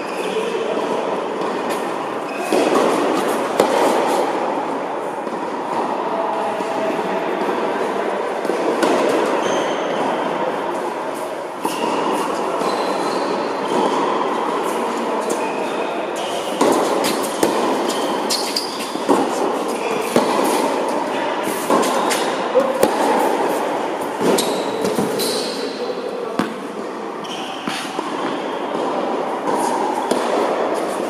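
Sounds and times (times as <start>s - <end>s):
rushing hall noise: 0.0s - 31.0s
tennis balls struck by racquets: 0.8s - 5.9s, 6.6s - 10.3s, 16.2s - 26.8s, 27.6s - 31.0s
shoes squeaking on court: 1.4s - 4.2s, 11.6s - 14.2s, 15.3s - 25.8s, 27.2s - 28.7s.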